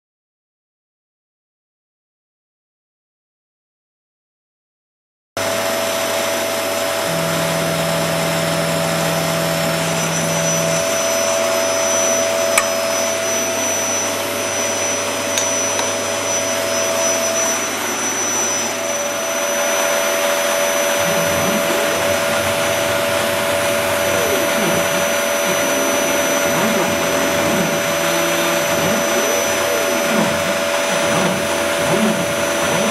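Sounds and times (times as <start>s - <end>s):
motor with rushing air: 5.5s - 32.9s
low hum: 7.0s - 32.9s
stepper motors gliding tones: 7.0s - 32.9s
click: 12.5s - 12.8s.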